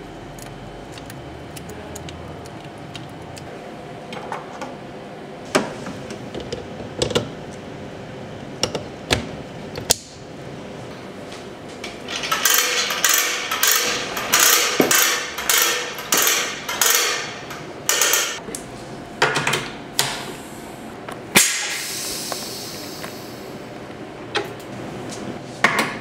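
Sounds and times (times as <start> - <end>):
hose reel ratcheting: 12.1 - 18.4
air hissing: 21.4 - 23.6.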